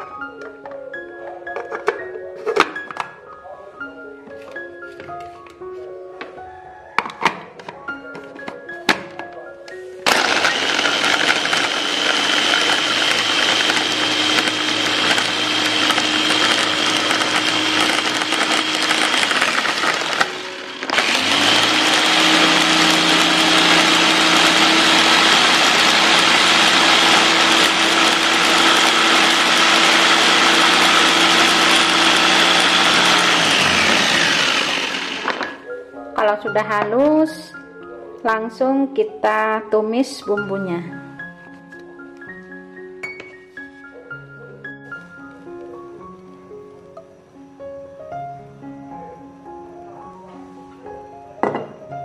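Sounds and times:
blades grinding spice paste: 10.1 - 35.6
electric chopper motor running: 10.1 - 35.6.

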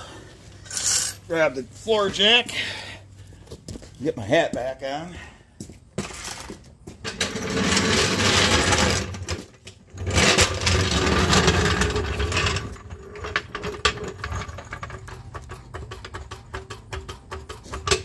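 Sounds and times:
floor jack rolling on concrete: 0.0 - 1.2, 6.0 - 18.0.

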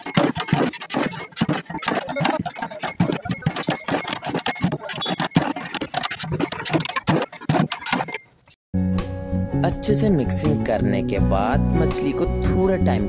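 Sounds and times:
wooden stick scraping metal pot: 0.0 - 8.6.

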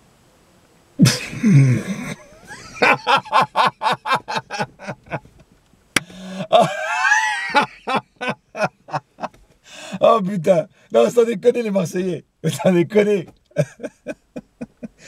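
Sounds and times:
man laughing: 1.0 - 5.3, 6.2 - 9.4, 13.5 - 15.0.

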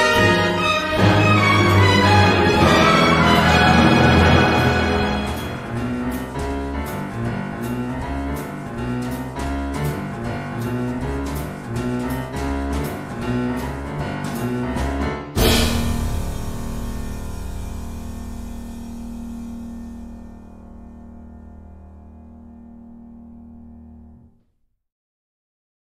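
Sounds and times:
orchestral film music: 0.0 - 10.0.

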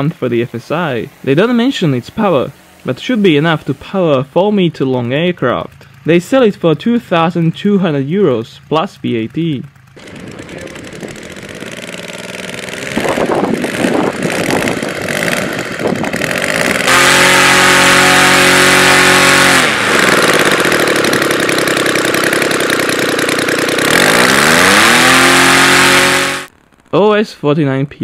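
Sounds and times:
model aircraft engine running: 0.0 - 27.2.

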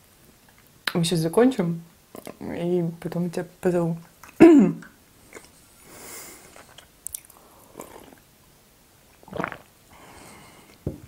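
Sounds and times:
swallowing: 6.5 - 8.2, 9.2 - 9.7
sipping from a mug: 9.2 - 9.7.

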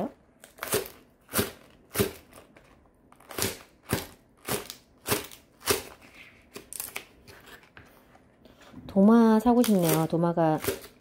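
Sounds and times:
knife cutting on plastic board: 0.5 - 8.0.

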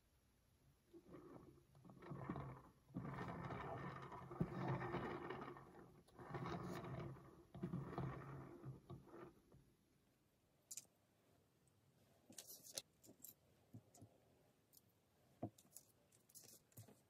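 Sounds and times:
turntable rumbling scraping whir: 1.0 - 9.5.

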